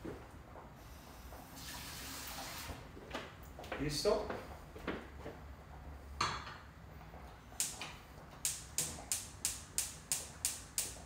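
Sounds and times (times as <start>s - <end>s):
gas igniter clicking: 8.4s - 11.0s.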